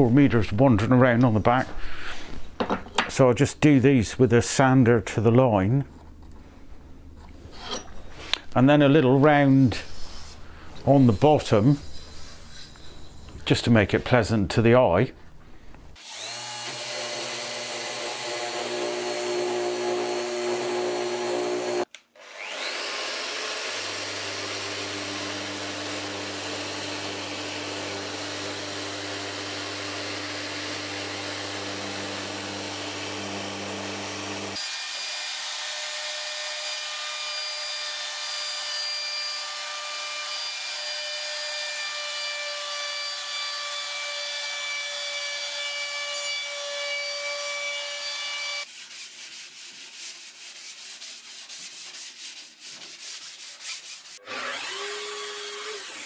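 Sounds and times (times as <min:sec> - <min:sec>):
electric sander humming: 0:16.0 - 0:35.7
router whining on plywood: 0:16.0 - 0:48.6, 0:54.2 - 0:56.0.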